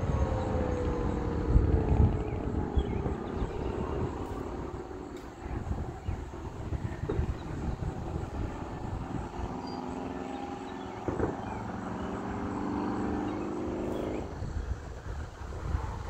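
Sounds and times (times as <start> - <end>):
distant warning siren: 0.0 - 16.0
wind rumble on microphone: 0.0 - 16.0
thump: 11.1 - 11.4.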